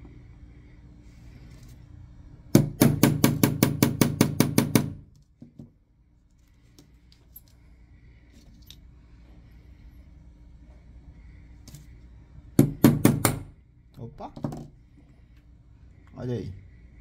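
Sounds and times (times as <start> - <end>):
hammer striking pin punch: 2.5 - 5.0, 12.6 - 13.5.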